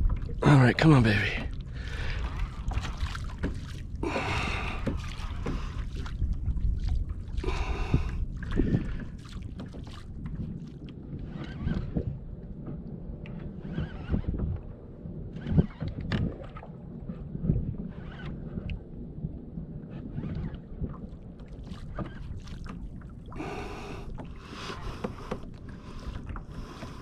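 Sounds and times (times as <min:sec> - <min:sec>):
water slapping plastic hull: 0:01.4 - 0:18.8, 0:20.0 - 0:27.0
wind buffeting microphone: 0:01.6 - 0:12.4, 0:13.5 - 0:16.6.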